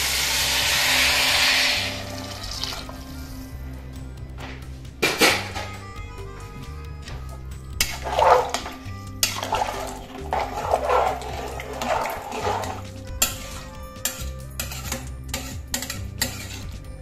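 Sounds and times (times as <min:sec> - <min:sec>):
ladle clinking and scraping pot: 0:00.1 - 0:03.1, 0:07.8 - 0:16.8
ladle stirring water swishing: 0:07.8 - 0:16.7.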